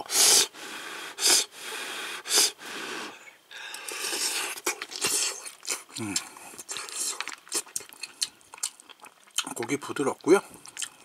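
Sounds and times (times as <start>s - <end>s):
person breathing: 0.0s - 4.6s
person puffing on hot soup: 0.0s - 8.2s.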